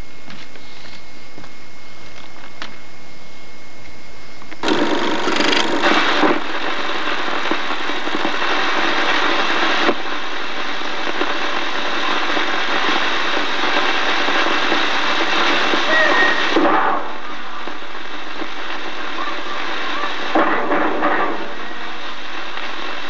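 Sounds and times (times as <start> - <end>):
film projector whirring and clattering: 4.6 - 6.8.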